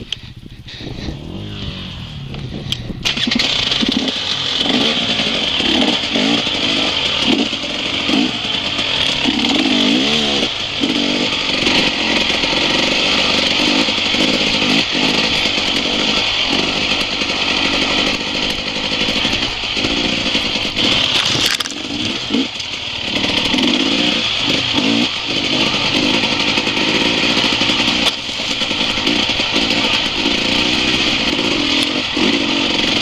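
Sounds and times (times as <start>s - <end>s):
dirt bike engine revving: 0.0s - 33.0s.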